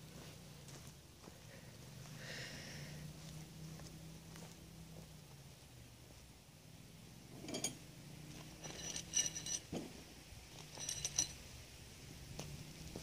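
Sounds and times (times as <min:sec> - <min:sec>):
metal fittings clinking: 0:08.5 - 0:09.8, 0:10.6 - 0:11.4.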